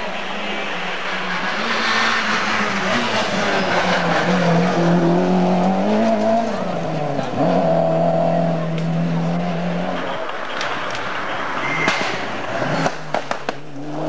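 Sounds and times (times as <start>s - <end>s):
tyres hissing on road: 0.0s - 7.9s
rally car engine revving: 0.0s - 14.0s.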